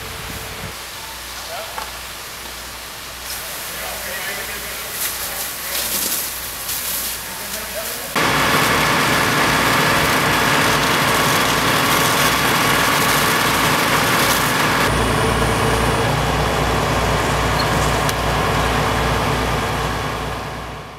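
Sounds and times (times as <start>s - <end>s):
heavy diesel engine running: 8.2s - 20.9s.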